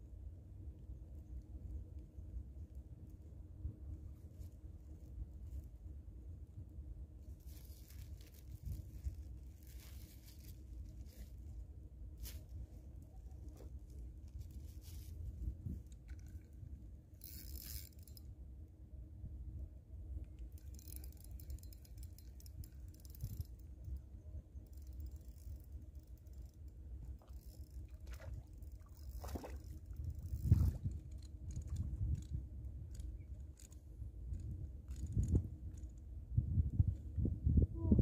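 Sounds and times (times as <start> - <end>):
low outdoor rumble: 0.0 - 38.0
handling rustles and scrapes: 7.2 - 11.6, 12.2 - 16.6.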